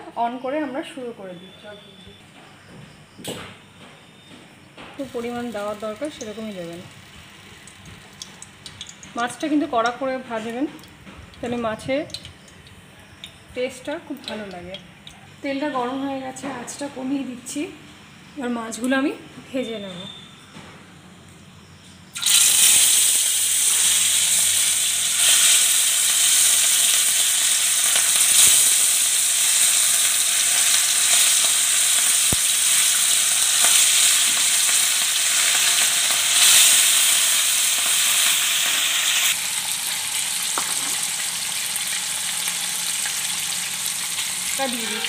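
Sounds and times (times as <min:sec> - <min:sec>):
fish sizzling in hot oil: 0:05.0 - 0:12.8, 0:22.2 - 0:45.0.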